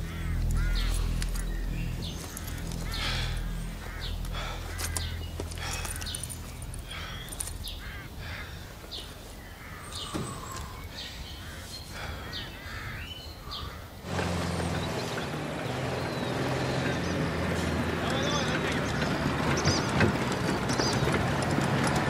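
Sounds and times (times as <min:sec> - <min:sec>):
steady noise with low drone: 0:00.0 - 0:14.2
low steady hum: 0:00.0 - 0:15.6
birds calling: 0:00.0 - 0:22.0.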